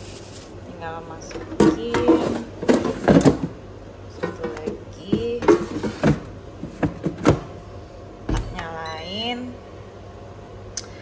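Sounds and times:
plastic baskets clunking on stone: 1.3s - 3.6s.

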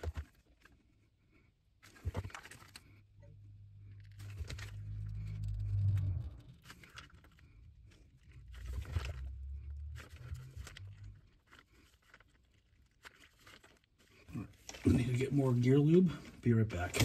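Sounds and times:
plastic bottle crinkling: 0.0s - 1.0s, 1.8s - 3.1s, 3.8s - 17.0s
low hum: 2.9s - 11.4s.

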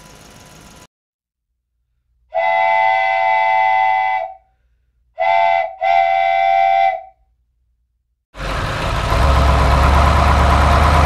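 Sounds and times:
steam train whistle: 2.3s - 4.5s, 5.2s - 7.2s.

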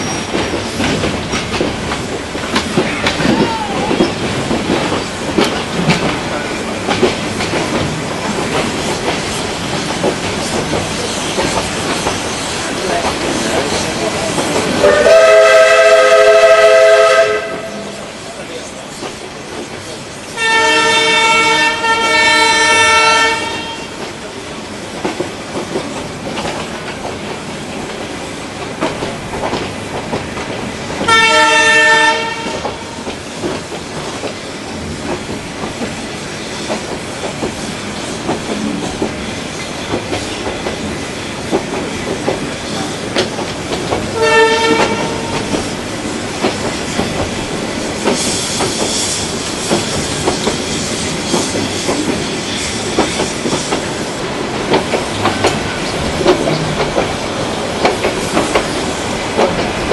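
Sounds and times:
train clickety-clack on rails: 0.0s - 59.9s
rushing hiss: 0.2s - 15.4s, 32.7s - 44.2s, 44.8s - 59.9s
train horn blast: 14.8s - 18.1s, 20.4s - 24.0s, 31.1s - 33.0s, 44.2s - 45.4s.

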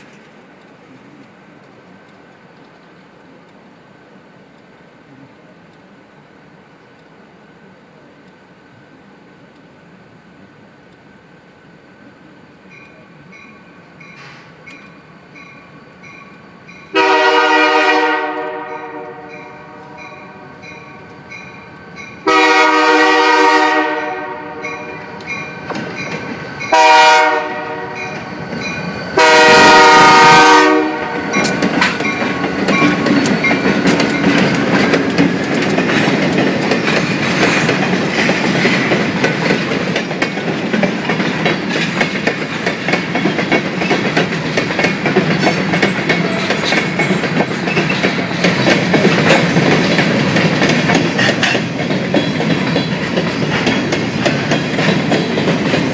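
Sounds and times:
train wheels rumbling and clacking: 0.0s - 55.9s
crossing bell ringing: 12.7s - 17.4s, 18.6s - 22.6s, 23.9s - 29.9s, 30.5s - 34.8s, 45.3s - 48.5s
locomotive air horn blasts: 16.9s - 20.6s, 22.2s - 25.2s, 26.7s - 28.2s, 29.2s - 31.3s.

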